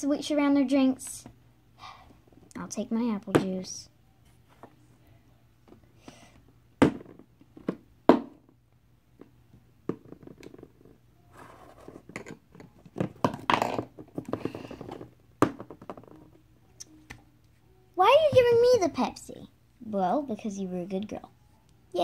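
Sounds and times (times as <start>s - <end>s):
plastic bottles knocking on cardboard: 12.1s - 16.3s.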